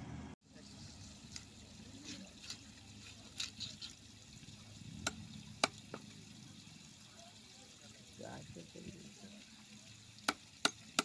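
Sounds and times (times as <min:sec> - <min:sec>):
cleaver chopping fish: 0:10.2 - 0:11.0.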